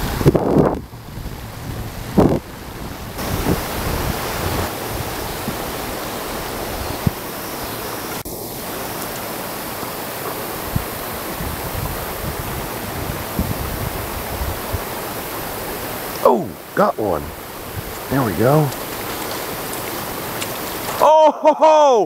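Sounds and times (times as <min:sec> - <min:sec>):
wind rumble on microphone: 0:00.0 - 0:08.2, 0:10.6 - 0:16.0, 0:17.2 - 0:20.9
water rushing over rocks: 0:00.0 - 0:21.4.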